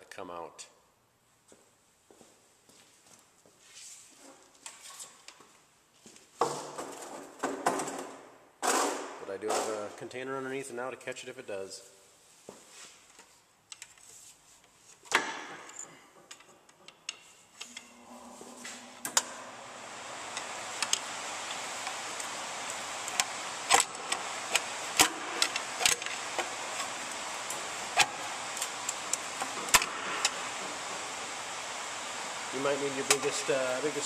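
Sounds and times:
steady hiss: 17.5 - 34.0.

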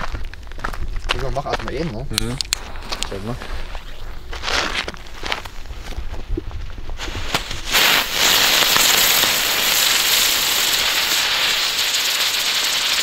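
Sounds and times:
firework hissing: 2.6 - 5.1, 7.0 - 13.0.

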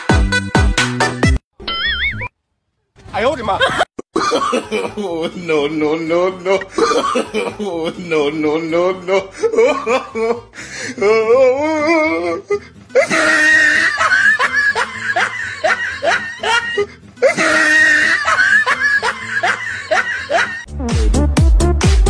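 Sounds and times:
background music: 0.0 - 1.4, 4.2 - 22.0
person laughing: 3.5 - 20.7
dance track with heavy beat: 20.7 - 22.0.

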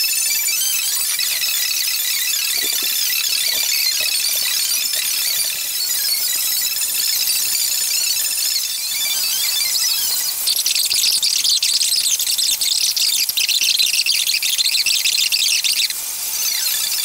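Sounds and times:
sped-up squeaking crowd chatter: 0.0 - 11.9.

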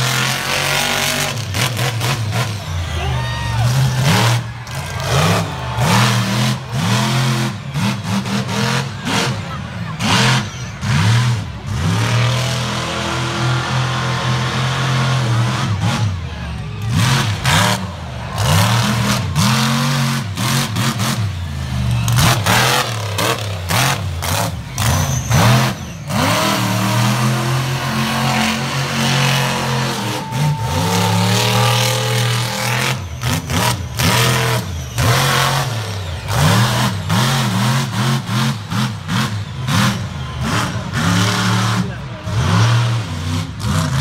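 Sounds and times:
truck engine revving: 0.0 - 44.0.

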